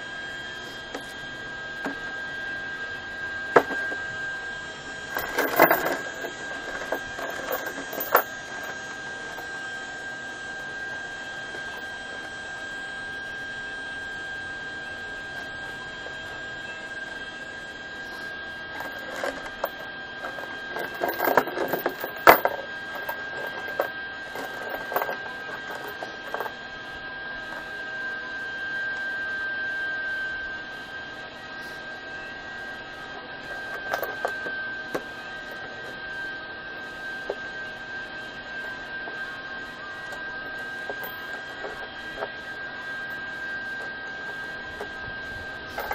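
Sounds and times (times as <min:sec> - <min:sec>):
high-pitched hum: 0:00.0 - 0:45.9
chain links clinking on wood: 0:03.5 - 0:04.0, 0:05.1 - 0:09.5, 0:18.1 - 0:26.5, 0:33.5 - 0:35.0, 0:40.4 - 0:42.3, 0:45.7 - 0:45.9.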